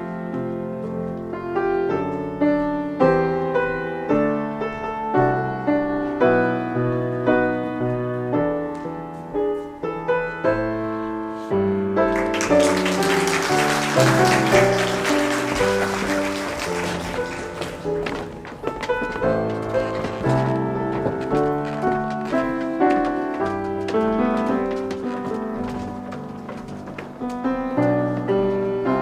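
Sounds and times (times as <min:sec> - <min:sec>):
solo piano music: 0:00.0 - 0:29.0
applause: 0:12.1 - 0:18.3.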